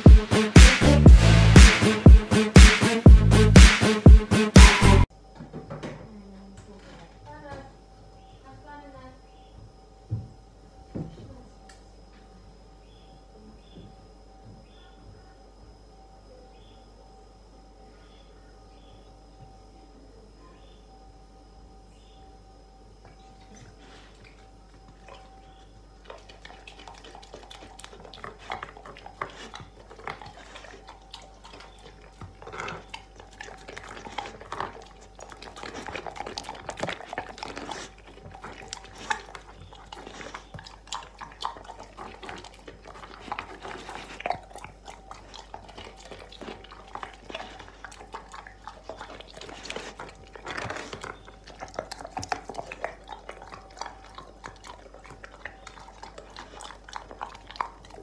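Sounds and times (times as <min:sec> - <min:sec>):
dog licking and chewing: 0:23.4 - 0:58.0.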